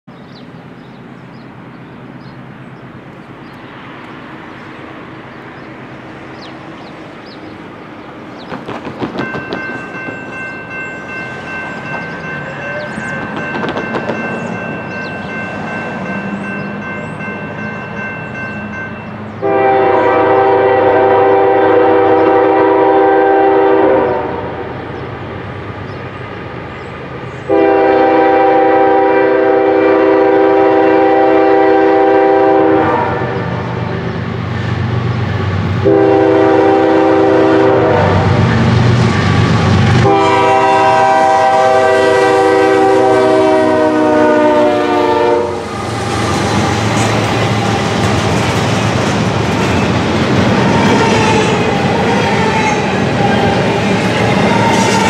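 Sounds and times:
diesel locomotive rumble: 0:00.1 - 0:55.0
locomotive air horn blasts: 0:19.4 - 0:24.7, 0:27.5 - 0:33.8, 0:35.8 - 0:38.5, 0:40.0 - 0:45.8.

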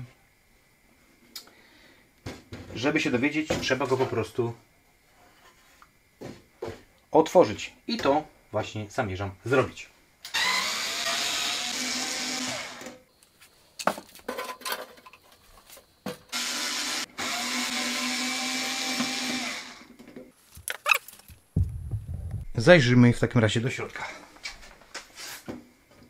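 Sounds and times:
electric screwdriver running: 0:10.3 - 0:12.9, 0:16.3 - 0:19.9.

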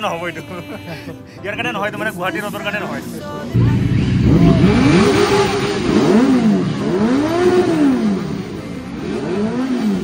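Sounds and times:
motorcycle engines revving: 0:03.6 - 0:10.0.

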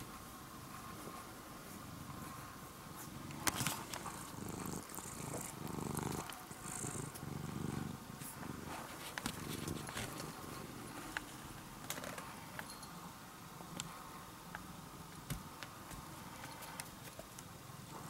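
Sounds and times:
cat purring: 0:00.6 - 0:12.2, 0:17.5 - 0:18.0.

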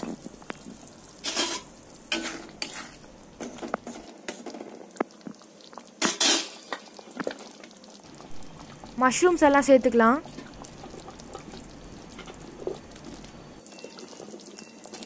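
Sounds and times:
spoon scraping a pan: 0:01.2 - 0:04.4.

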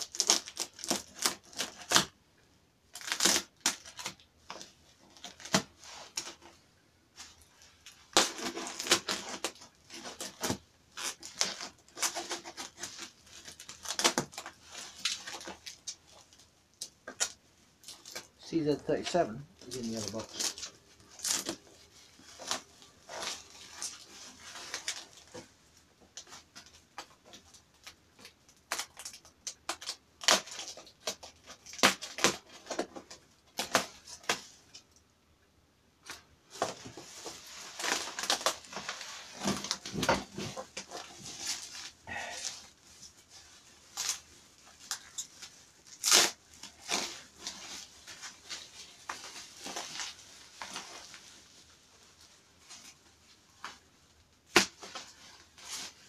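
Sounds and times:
bubble wrap crinkling and crackling: 0:00.0 - 0:02.2, 0:02.9 - 0:35.0, 0:36.0 - 0:56.0.

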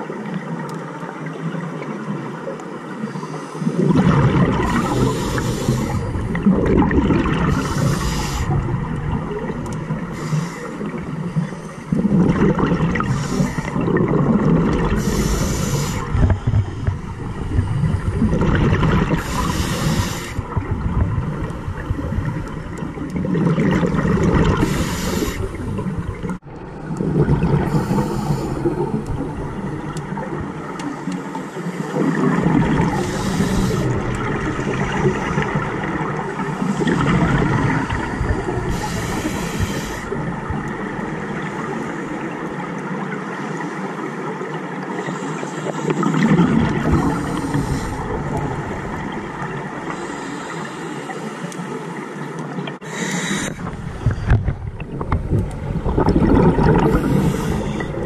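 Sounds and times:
gurgle of exhaled bubbles: 0:03.8 - 0:31.1, 0:31.9 - 0:43.0, 0:45.7 - 0:50.1, 0:52.6 - 0:58.0
regulator hiss on inhalation: 0:04.7 - 0:06.1, 0:07.5 - 0:08.6, 0:10.1 - 0:10.9, 0:13.0 - 0:13.7, 0:15.0 - 0:16.2, 0:19.2 - 0:20.4, 0:24.6 - 0:25.6, 0:27.7 - 0:28.7, 0:33.0 - 0:34.0, 0:38.7 - 0:40.1, 0:52.8 - 0:53.6, 0:56.9 - 0:58.0.

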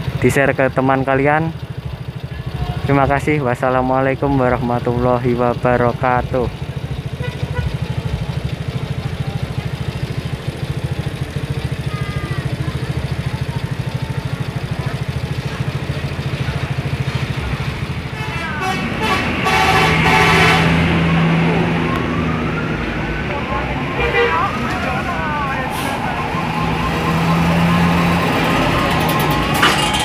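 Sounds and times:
bus diesel engine rumbling: 0:00.0 - 0:30.0
bus horn: 0:07.1 - 0:08.0, 0:17.9 - 0:22.1, 0:23.7 - 0:30.0.

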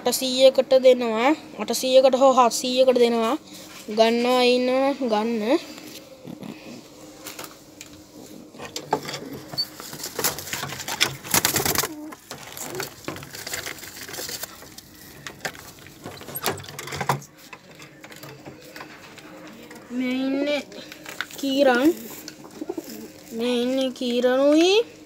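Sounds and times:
pigeons cooing: 0:08.1 - 0:16.6, 0:21.7 - 0:23.4
knocks and rustling in cage: 0:08.6 - 0:17.4.

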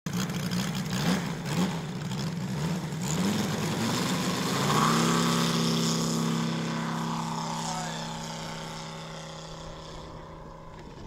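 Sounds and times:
model plane engine: 0:05.1 - 0:11.0.

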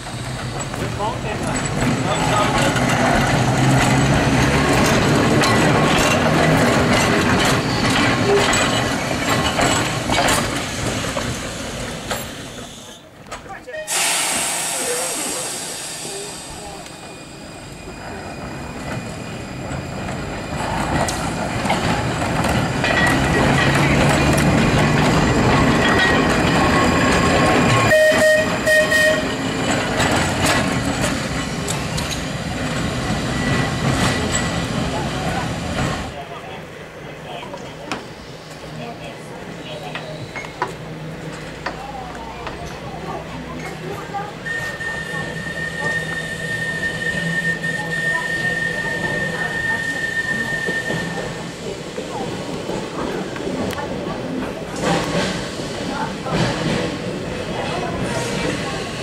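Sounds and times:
tram wheels rattling on rails: 0:00.0 - 0:59.0
tram whistle toots: 0:26.6 - 0:29.6, 0:44.4 - 0:51.5.

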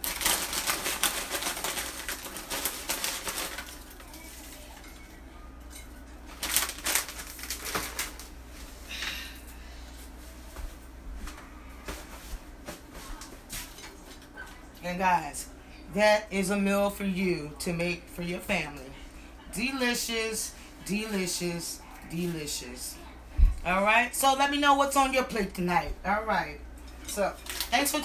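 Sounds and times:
plastic chip bag crinkling: 0:00.0 - 0:05.2, 0:05.8 - 0:08.5, 0:27.3 - 0:28.0.

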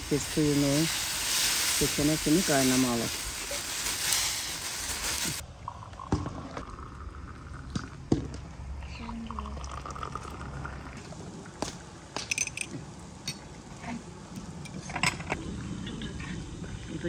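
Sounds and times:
tea pouring into glasses: 0:09.1 - 0:11.2.

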